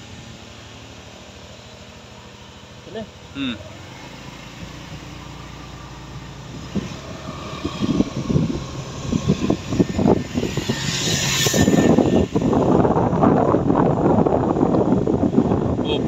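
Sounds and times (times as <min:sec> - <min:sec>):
motorcycle engine running: 0:00.0 - 0:16.0
wind buffeting microphone: 0:06.4 - 0:16.0.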